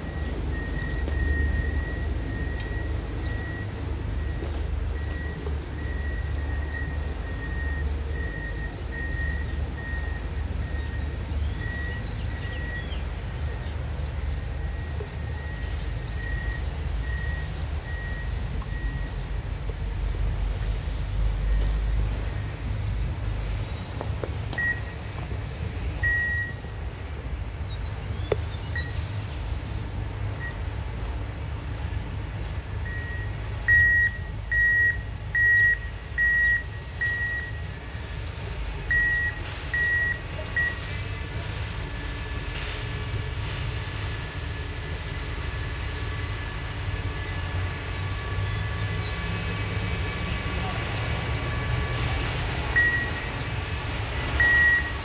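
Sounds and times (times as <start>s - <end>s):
back-up alarm beeping: 0.0s - 12.9s, 14.7s - 19.2s, 24.5s - 25.0s, 26.0s - 26.8s, 30.3s - 30.7s, 32.8s - 37.7s, 38.9s - 40.8s, 52.8s - 53.4s, 54.4s - 55.0s
engine drone: 0.0s - 55.0s.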